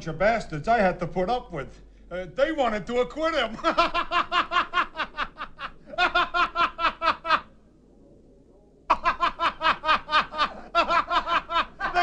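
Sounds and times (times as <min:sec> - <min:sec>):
person laughing: 0:08.9 - 0:12.0.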